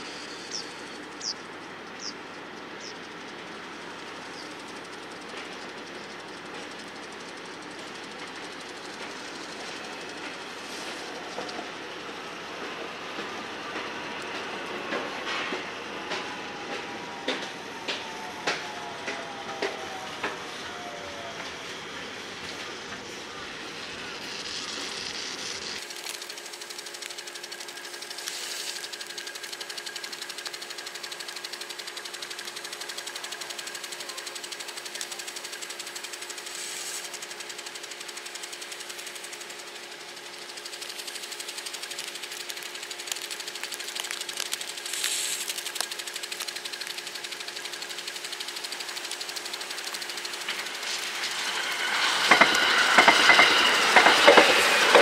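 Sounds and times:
steady hum: 0.0s - 55.0s
train wheels clattering over rails: 50.4s - 55.0s.

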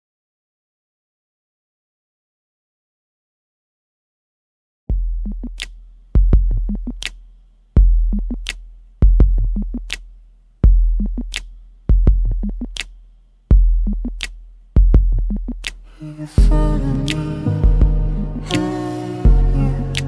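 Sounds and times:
deep bass kicks: 4.9s - 7.0s, 7.8s - 9.9s, 10.6s - 11.3s, 11.9s - 12.7s, 13.5s - 14.2s, 14.8s - 15.6s, 16.4s - 18.5s, 19.3s - 19.9s
snare-like crack: 5.6s - 5.8s, 7.0s - 7.3s, 8.4s - 8.6s, 9.8s - 10.1s, 11.3s - 11.6s, 12.7s - 13.0s, 15.6s - 15.8s.

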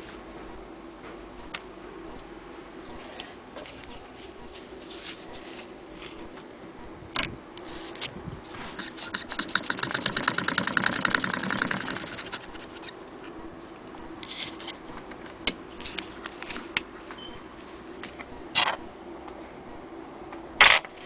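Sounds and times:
scattered clicks and rustles: 1.4s - 16.9s
sewing machine clicking rapidly: 9.2s - 12.4s.

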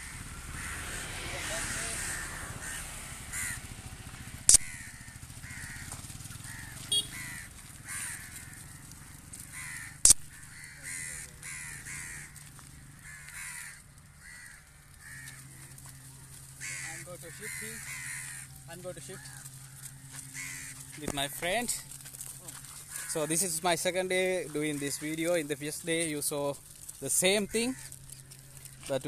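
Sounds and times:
crows cawing: 0.0s - 29.0s
sharp clicks: 4.5s - 4.7s, 10.0s - 10.3s.

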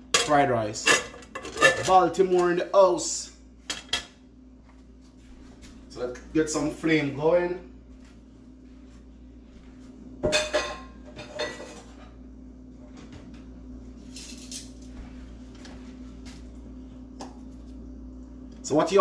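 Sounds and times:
steady low hum: 0.0s - 19.0s
metal utensils clattering: 0.2s - 2.0s, 10.3s - 12.0s.

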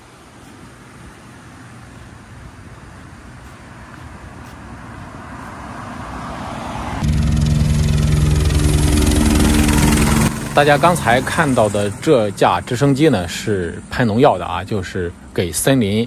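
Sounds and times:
rushing noise: 0.0s - 15.8s
low engine drone: 4.6s - 16.0s
helicopter rotor chop: 6.3s - 16.0s.

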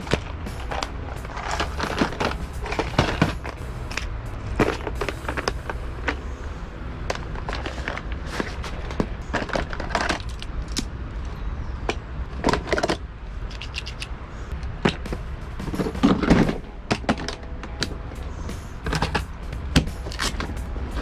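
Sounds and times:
plastic boxes clicking and rattling: 0.0s - 3.6s, 7.1s - 10.9s, 12.3s - 14.1s
low rumble: 0.0s - 11.2s, 14.5s - 21.0s.

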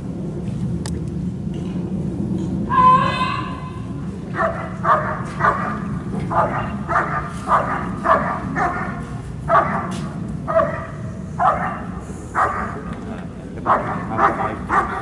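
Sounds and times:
dog barking: 4.4s - 12.8s, 13.6s - 15.0s.

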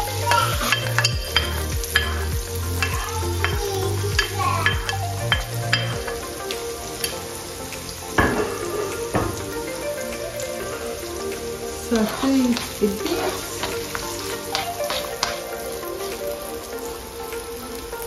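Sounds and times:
onion and garlic sizzling in oil: 0.0s - 6.2s, 11.8s - 16.6s.

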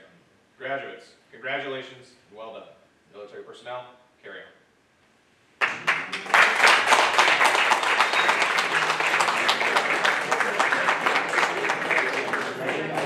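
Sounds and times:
audience applauding: 5.6s - 13.0s.

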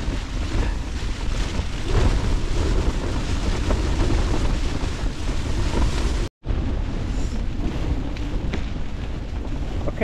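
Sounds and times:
wind buffeting tent fabric: 0.0s - 10.0s.

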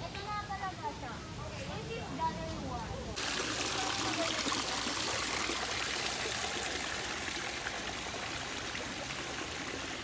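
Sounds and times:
water trickling into a pool: 3.2s - 10.0s.

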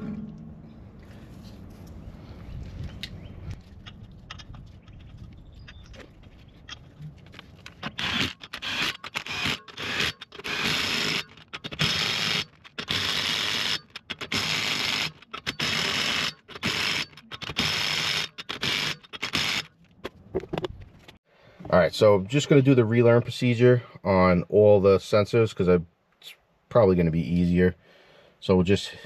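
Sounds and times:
impact wrench bursts: 7.8s - 19.7s.

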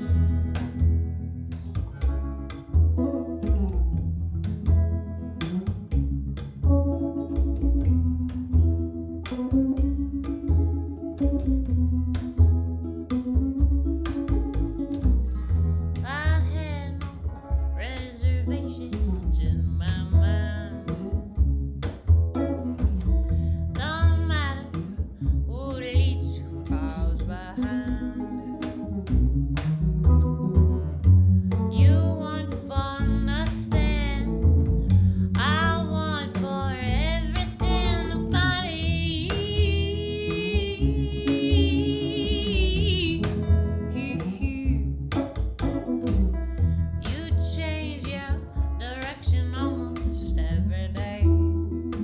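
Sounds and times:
picked guitar: 0.0s - 52.0s
plucked double bass: 0.0s - 52.0s
woman singing: 16.0s - 21.1s, 23.7s - 28.8s, 31.5s - 45.1s, 47.0s - 51.6s.

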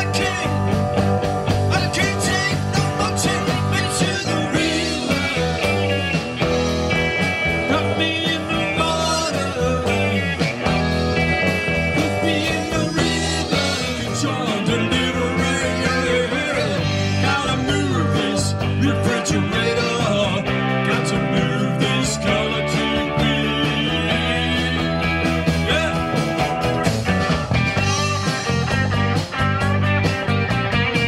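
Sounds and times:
bending guitar notes: 0.0s - 31.0s
live rock band playing: 0.0s - 31.0s.

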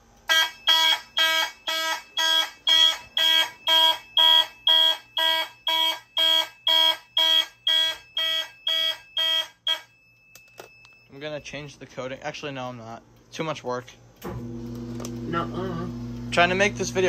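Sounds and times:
fire alarm horns pulsing: 0.0s - 10.3s.

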